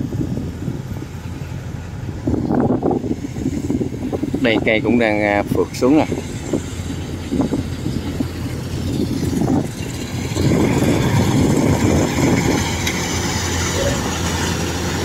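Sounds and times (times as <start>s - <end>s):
diesel engine hum: 0.0s - 15.0s
harvester cutting clatter: 0.9s - 15.0s.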